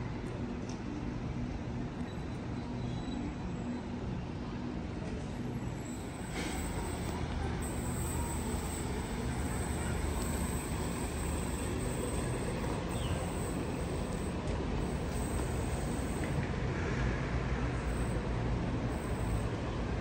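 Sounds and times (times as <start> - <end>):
electric train approaching: 5.4 - 20.0.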